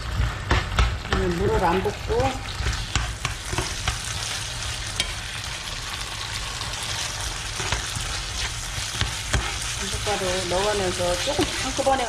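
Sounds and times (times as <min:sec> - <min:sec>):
food sizzling in frying pan: 0:00.0 - 0:12.0
spatula scraping and tapping pan: 0:00.1 - 0:04.3, 0:04.9 - 0:05.2, 0:07.5 - 0:12.0.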